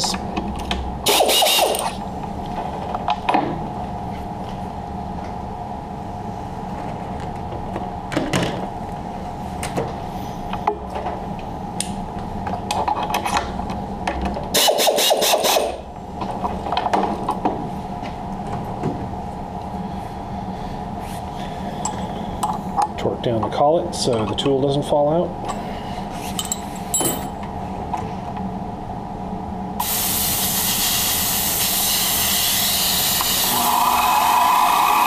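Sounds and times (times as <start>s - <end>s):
machine hum: 0.0s - 35.0s.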